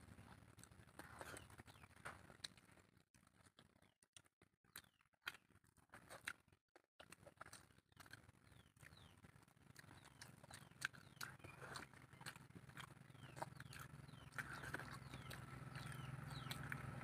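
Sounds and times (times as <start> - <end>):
wet chewing and lip-smacking: 0.0 - 17.0
fingers squishing food: 4.6 - 17.0.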